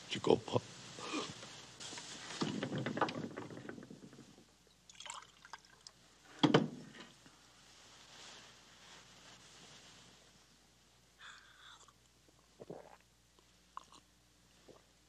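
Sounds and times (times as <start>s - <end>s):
liquid pouring into cup: 4.9s - 5.9s.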